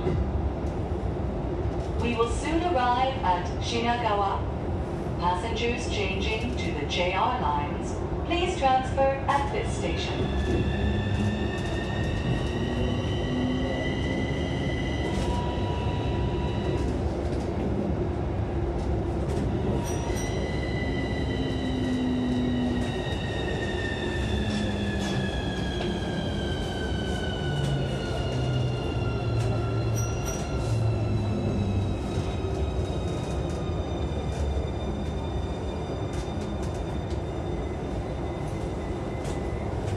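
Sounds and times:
wheels rumbling on rails: 0:09.4 - 0:39.9.

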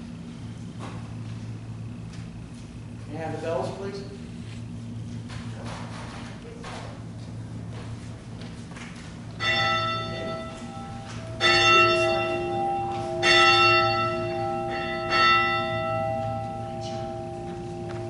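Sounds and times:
bell ringing: 0:09.4 - 0:18.0.

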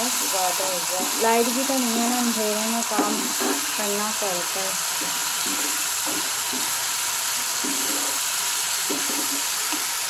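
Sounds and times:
spatula stirring and scraping: 0:00.0 - 0:03.9, 0:04.8 - 0:06.8, 0:07.4 - 0:09.6
chillies sizzling in oil: 0:00.0 - 0:10.0.

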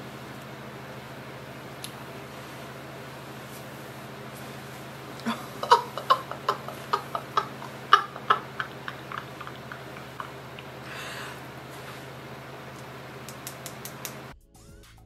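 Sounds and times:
kissing smacks against hand: 0:13.3 - 0:14.2.

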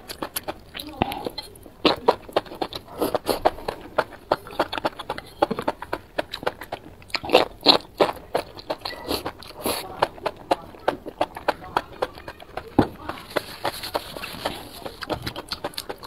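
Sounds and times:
wet chewing: 0:00.0 - 0:16.0.

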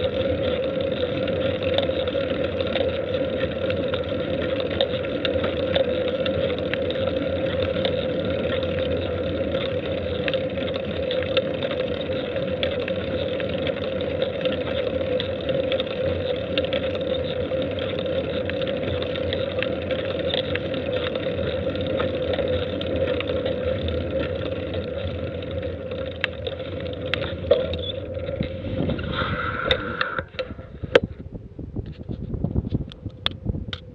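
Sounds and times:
rolling noise on paved road: 0:00.0 - 0:33.9
wind noise: 0:28.1 - 0:33.9.

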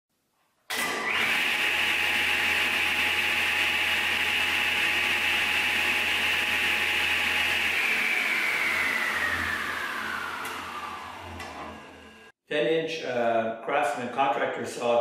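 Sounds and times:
table saw whine and hum: 0:00.8 - 0:12.3.

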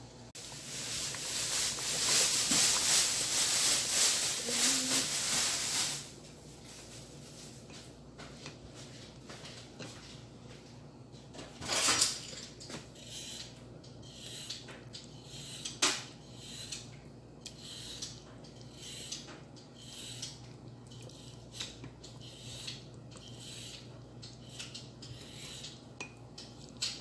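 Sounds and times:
wooden spoon scraping a pot: 0:12.6 - 0:16.9, 0:17.5 - 0:27.0.

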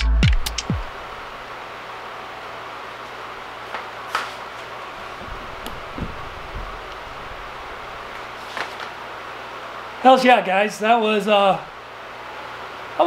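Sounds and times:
low even hiss: 0:00.0 - 0:13.0
soft low thuds: 0:05.0 - 0:08.4.

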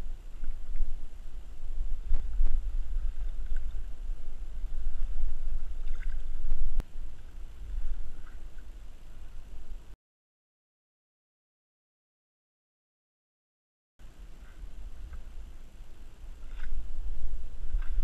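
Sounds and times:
water splashing: 0:00.0 - 0:09.8, 0:14.1 - 0:18.0
wind rumbling on microphone: 0:00.0 - 0:10.0, 0:14.0 - 0:18.0.

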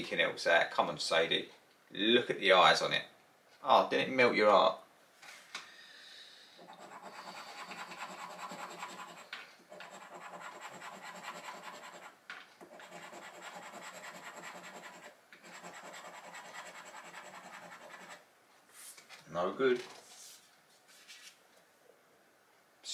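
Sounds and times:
scratchcard being scratched: 0:06.6 - 0:18.2.

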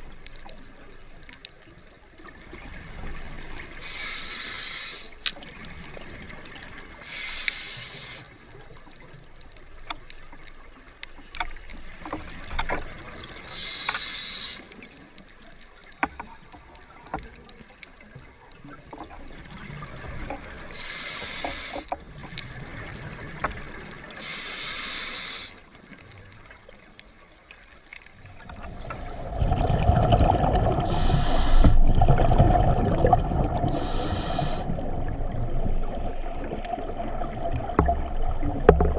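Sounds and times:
faint clicks in water: 0:00.0 - 0:38.9
scuba regulator bubbles hissing: 0:03.8 - 0:05.2, 0:07.0 - 0:08.2, 0:13.5 - 0:14.8, 0:20.7 - 0:21.9, 0:24.2 - 0:25.6, 0:28.8 - 0:38.9.

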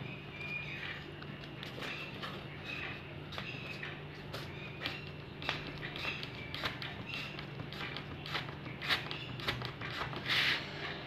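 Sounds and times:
steady low hum: 0:00.0 - 0:11.0
eraser scratching on paper: 0:06.0 - 0:10.6.

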